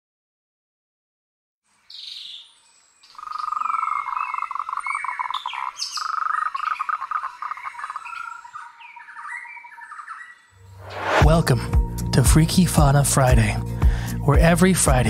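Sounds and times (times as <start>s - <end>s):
birds chirping and whistling: 1.9s - 11.2s
frogs trilling: 2.4s - 10.6s.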